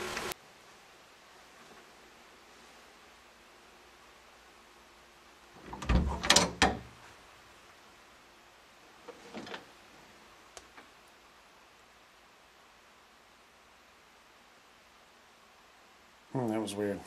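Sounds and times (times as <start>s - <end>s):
door latch clicking and rattling: 5.7s - 6.9s
faint ticks: 10.5s - 11.2s.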